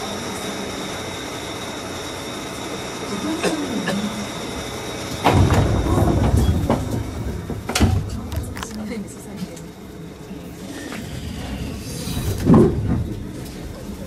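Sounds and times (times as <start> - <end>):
electric train humming: 0.0 - 14.0
train doors closing thump: 5.2 - 8.5.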